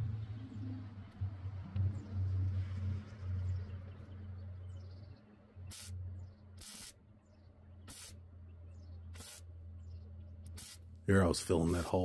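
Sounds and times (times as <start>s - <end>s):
steady low hum: 0.0s - 12.0s
welder arc crackling: 5.7s - 6.0s, 6.6s - 7.0s, 7.9s - 8.2s, 9.2s - 9.4s, 10.5s - 10.8s.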